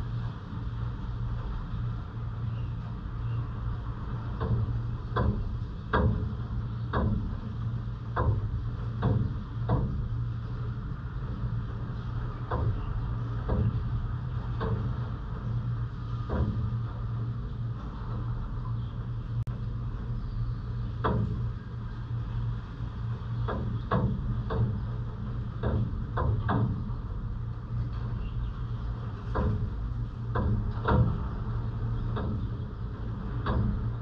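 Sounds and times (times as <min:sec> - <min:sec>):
city traffic rumble: 0:00.0 - 0:34.0.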